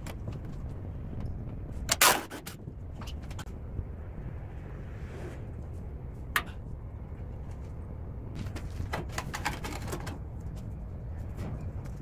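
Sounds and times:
low hum: 2.5 - 8.9.

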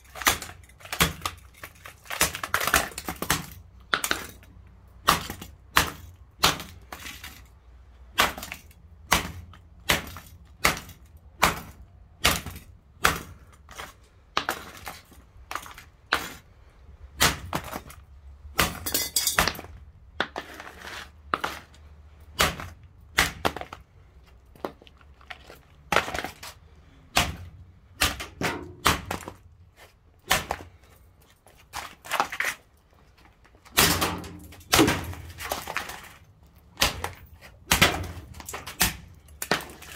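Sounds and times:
plastic casing smashed on paving: 0.0 - 4.4.

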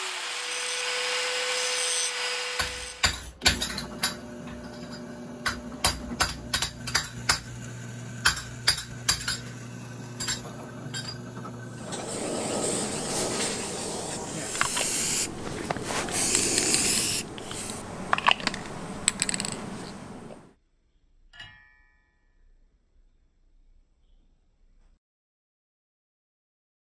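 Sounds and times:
drill press humming: 2.7 - 20.5
aerosol spray can hissing: 12.0 - 20.4
metal clicks and knocks: 17.3 - 20.4.

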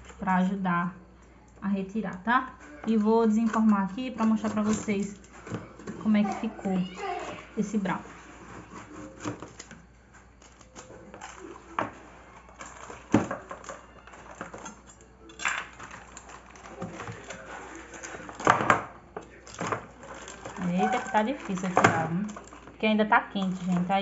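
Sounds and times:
knife scraping metal baking pan: 19.4 - 22.6.

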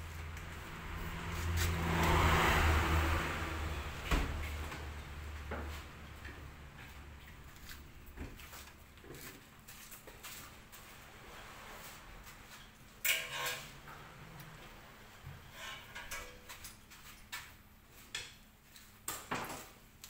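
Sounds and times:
engine humming: 0.0 - 8.9.

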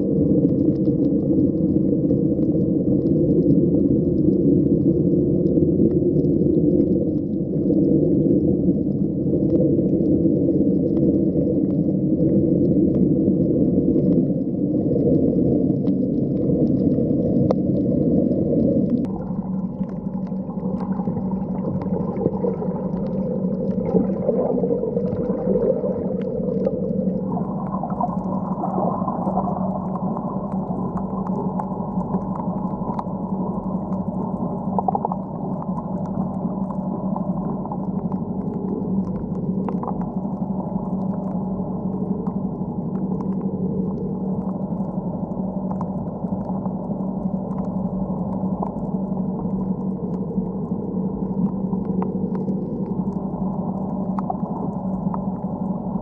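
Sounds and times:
steady low hum: 0.0 - 56.0
underwater low rumble: 0.0 - 56.0
faint clicks: 29.0 - 55.9.

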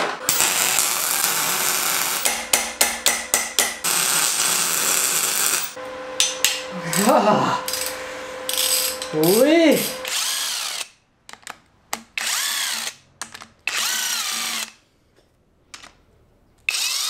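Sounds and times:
welder arc crackling and hissing: 0.3 - 2.4, 3.8 - 10.4.

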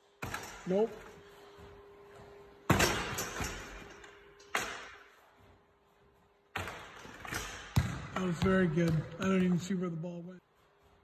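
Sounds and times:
football thudding in large room: 0.0 - 11.0
ball bouncing: 6.5 - 9.7.

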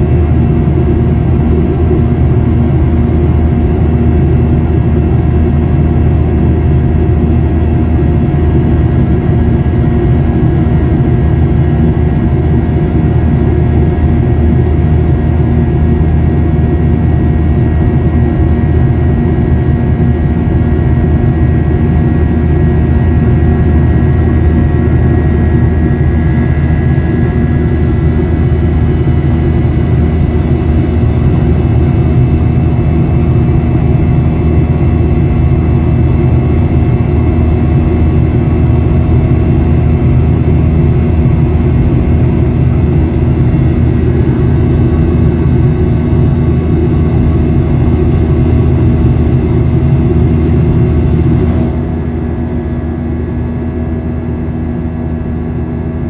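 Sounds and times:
aircraft cabin roar: 0.0 - 56.0.

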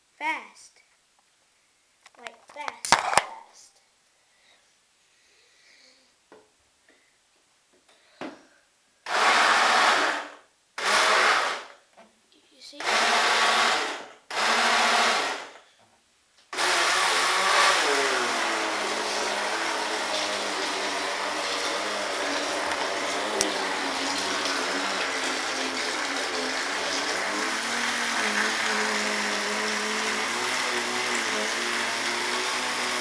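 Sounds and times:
electric boat motor running: 16.6 - 33.0.

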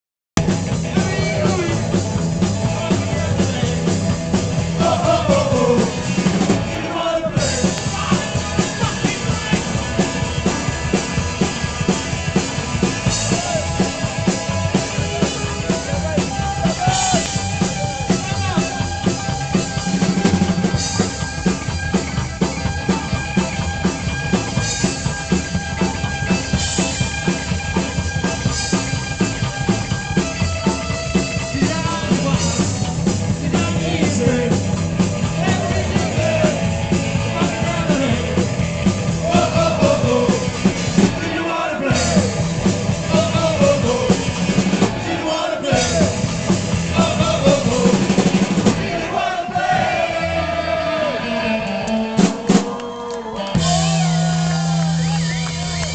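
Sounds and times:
drum kit beat: 0.4 - 50.9, 52.0 - 55.9
upright double bass: 0.4 - 51.4
electric guitar: 0.4 - 55.9
person singing: 4.7 - 6.2, 39.2 - 42.4, 43.0 - 46.2.

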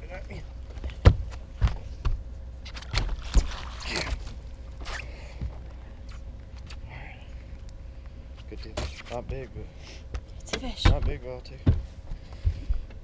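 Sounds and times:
knocks and thumps on boat deck: 0.8 - 2.2, 10.6 - 13.0
water splash: 2.8 - 4.3.

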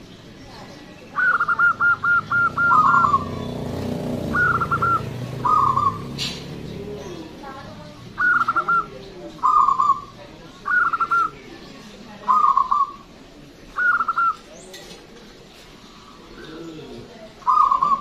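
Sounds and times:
dove cooing: 1.1 - 11.5, 12.2 - 13.1, 13.7 - 14.6, 15.8 - 18.0.

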